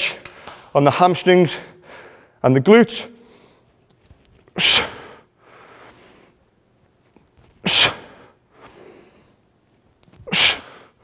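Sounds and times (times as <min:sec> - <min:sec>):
man breathing: 0:01.5 - 0:02.4, 0:03.1 - 0:03.8, 0:04.5 - 0:06.6, 0:07.8 - 0:09.6, 0:10.2 - 0:11.0.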